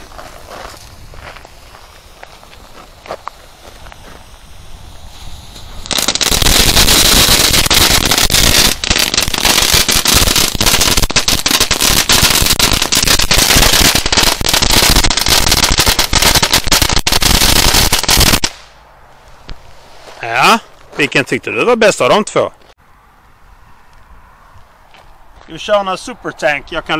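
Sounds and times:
firecracker string crackling: 0.0s - 20.3s.

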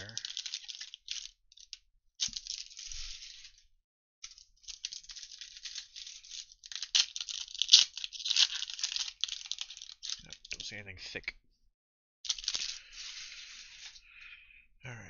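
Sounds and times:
foil wrapper tearing and crinkling: 0.0s - 3.6s, 4.3s - 10.6s, 12.3s - 14.0s.

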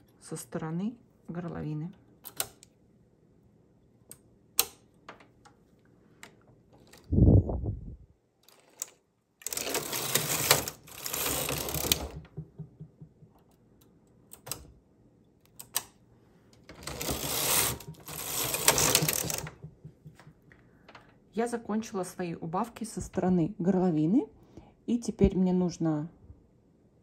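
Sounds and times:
knitting machine carriage rattling: 8.4s - 12.9s, 16.7s - 20.3s.

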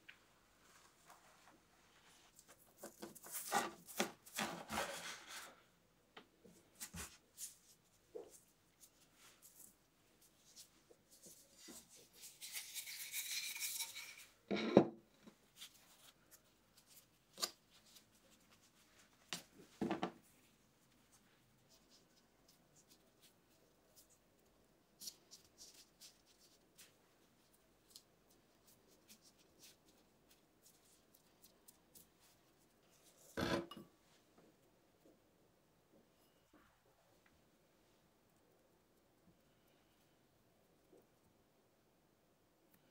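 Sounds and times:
rustling scrape of dough: 0.6s - 5.7s, 6.8s - 14.4s.

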